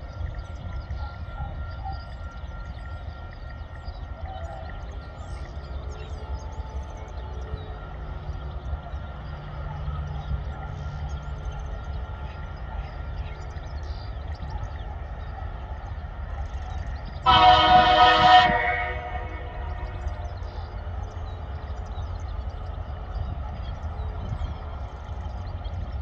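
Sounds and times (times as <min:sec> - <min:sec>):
diesel locomotives rumbling: 0:00.0 - 0:26.0
locomotive horn: 0:17.2 - 0:20.5.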